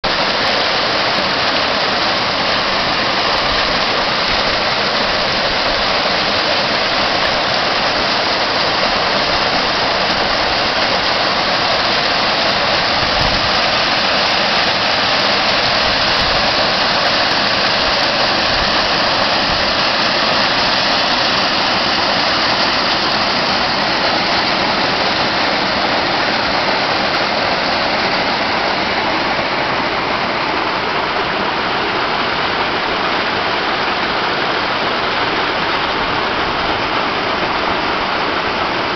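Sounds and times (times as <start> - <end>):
water splashing over boulders: 0.0 - 38.9.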